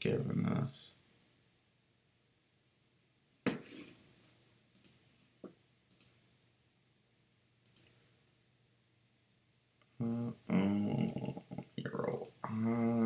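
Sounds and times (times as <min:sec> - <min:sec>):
computer mouse clicks: 0:04.7 - 0:05.0, 0:05.9 - 0:06.2, 0:07.6 - 0:07.9, 0:12.1 - 0:12.4.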